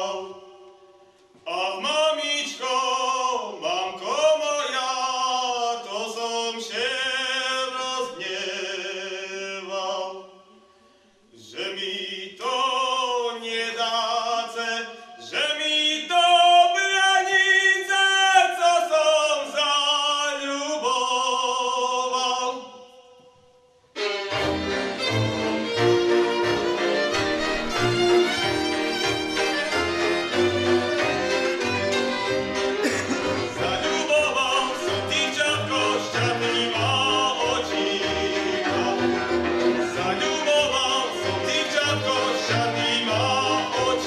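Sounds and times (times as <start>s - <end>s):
man singing folk song: 1.4s - 10.2s, 11.4s - 22.6s, 33.0s - 44.0s.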